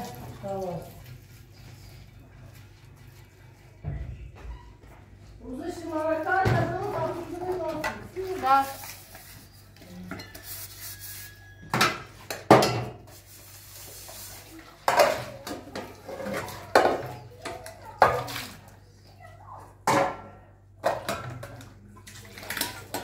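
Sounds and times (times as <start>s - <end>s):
steel dishes clanking in sink: 11.7s - 13.1s.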